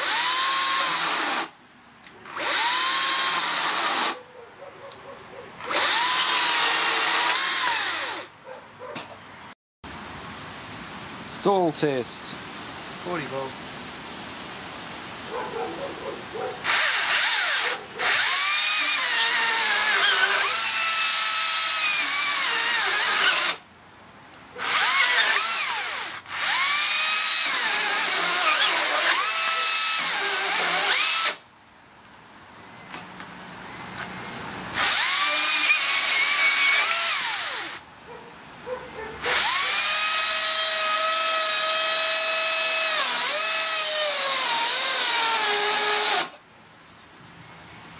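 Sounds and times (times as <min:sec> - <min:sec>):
chainsaw cutting wood: 0:00.0 - 0:01.5, 0:02.3 - 0:04.2, 0:05.6 - 0:08.3, 0:16.6 - 0:23.6, 0:24.6 - 0:31.4, 0:34.8 - 0:37.8, 0:39.2 - 0:46.4.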